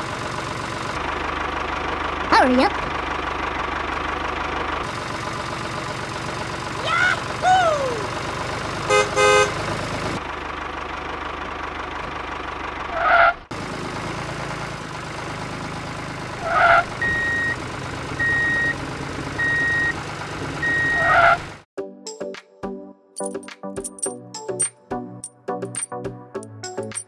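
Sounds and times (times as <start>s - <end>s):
horn toots: 8.9s - 9.7s
reversing beeps: 17.0s - 17.6s, 18.2s - 18.8s, 19.4s - 20.0s, 20.6s - 21.1s.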